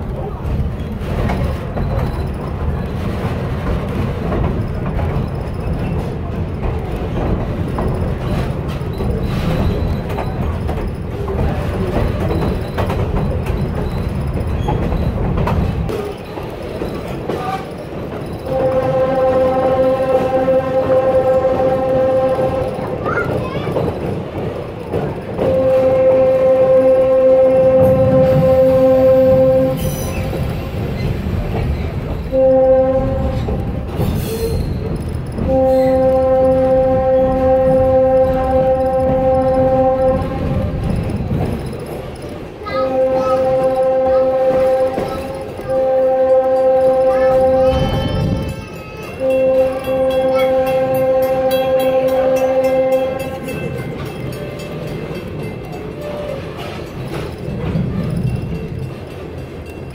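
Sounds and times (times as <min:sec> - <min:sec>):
low rumble of moving train: 0:00.0 - 0:59.9
locomotive horn blasts: 0:18.4 - 0:23.0, 0:25.4 - 0:30.2, 0:32.3 - 0:33.7, 0:35.4 - 0:40.9, 0:42.8 - 0:48.5, 0:49.2 - 0:53.8.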